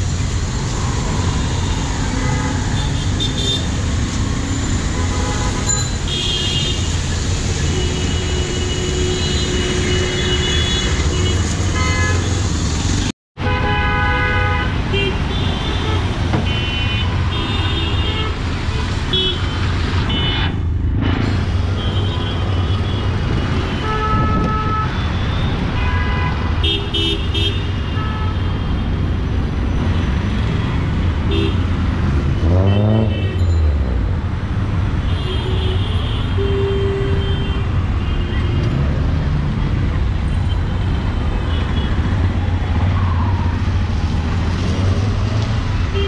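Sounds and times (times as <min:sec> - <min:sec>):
engine revving: 0:31.9 - 0:34.0.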